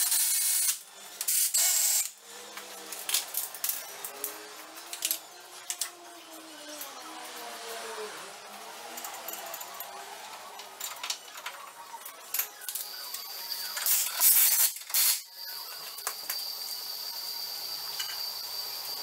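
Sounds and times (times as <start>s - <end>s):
tools and metal parts clinking: 8.8s - 13.0s, 13.7s - 15.3s, 17.9s - 19.0s.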